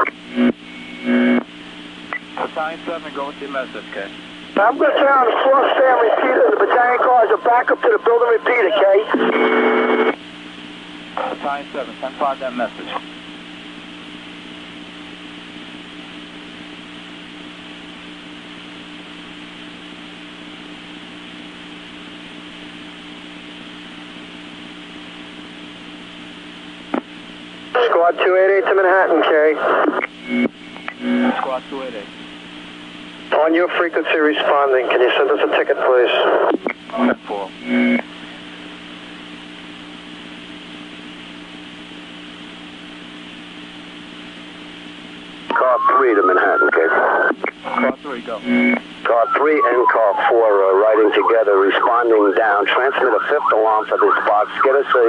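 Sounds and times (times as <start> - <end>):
faint low hum: 0.0 - 55.0
radio static hiss: 0.0 - 55.0
low hum: 36.7 - 51.9.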